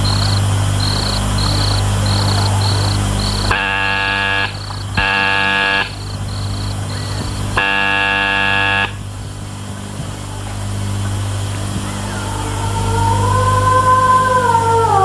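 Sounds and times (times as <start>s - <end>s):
doorbell buzzer: 0.0s - 9.0s
crickets chirping: 0.0s - 15.0s.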